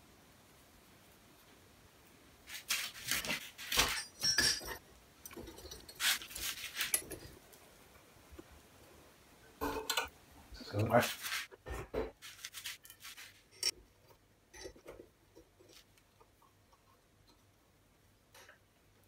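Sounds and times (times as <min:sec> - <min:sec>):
steel parts clinking and scraping: 0:03.3 - 0:07.3, 0:12.2 - 0:13.8.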